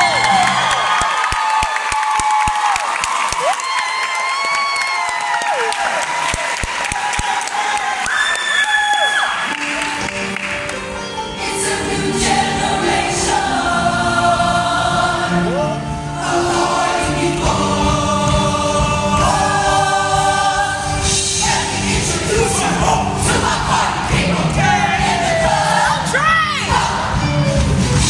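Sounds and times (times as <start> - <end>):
instrumental accompaniment: 9.4 - 28.0
choir singing in harmony: 11.2 - 28.0.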